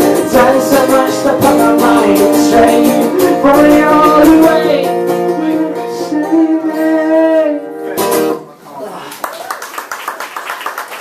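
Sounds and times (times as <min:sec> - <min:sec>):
man singing: 0:00.0 - 0:08.2
guitar strumming: 0:00.0 - 0:08.5.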